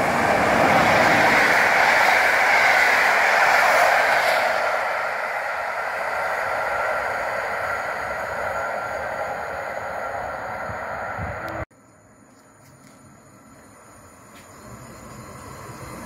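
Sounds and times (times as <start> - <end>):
train wheels on rails: 0.0 - 16.0.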